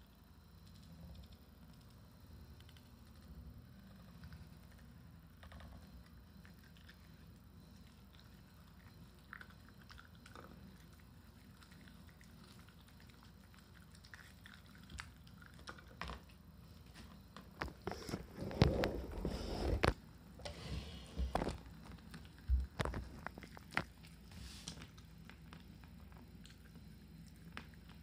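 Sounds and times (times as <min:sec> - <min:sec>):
dog chewing and crunching: 0:04.0 - 0:16.4, 0:21.4 - 0:28.0.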